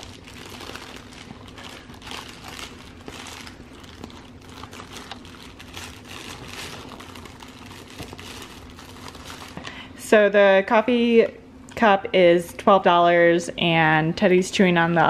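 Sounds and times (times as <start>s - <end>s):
crinkly dog toy rustling: 0.0s - 9.8s.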